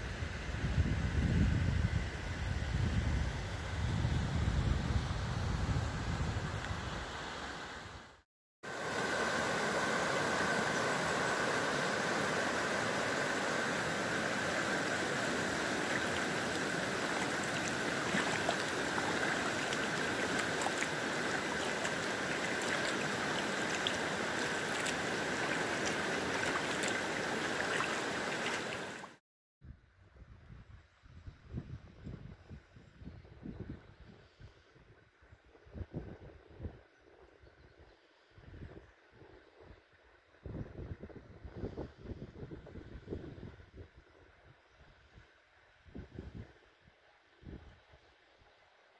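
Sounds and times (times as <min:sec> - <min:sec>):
river water rushing: 0:08.7 - 0:29.2.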